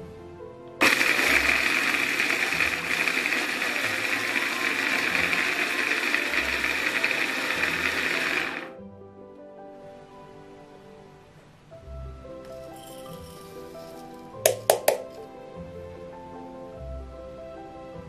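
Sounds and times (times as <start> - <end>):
electric blender running: 0.8 - 8.8.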